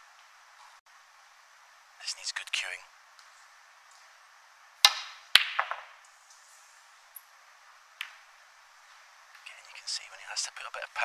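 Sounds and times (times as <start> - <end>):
cue tip hitting ball: 4.8 - 6.0, 8.0 - 8.2
snooker balls clicking: 4.8 - 6.0, 8.0 - 8.3.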